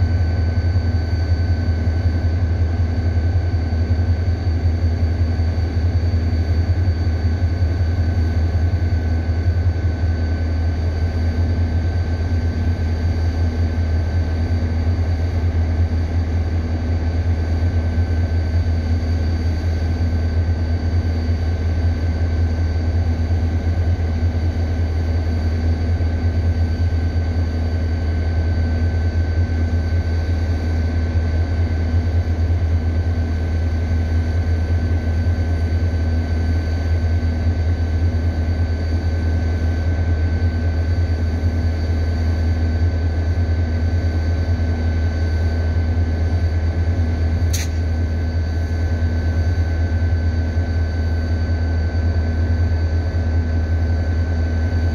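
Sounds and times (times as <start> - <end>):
faint steady whine: 0.0 - 54.9
train engine idling drone: 0.0 - 54.9
sharp click: 47.5 - 47.9.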